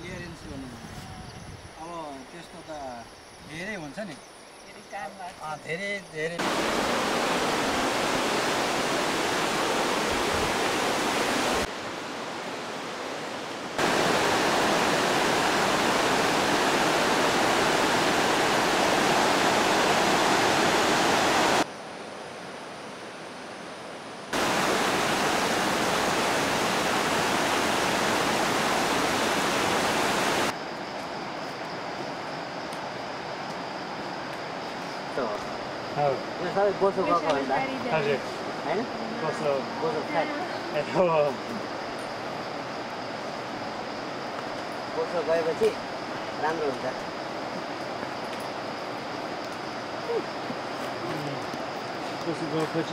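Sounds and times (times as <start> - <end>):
fast river rushing: 6.4 - 21.7, 24.3 - 30.5
faint high steady tone: 24.4 - 51.5.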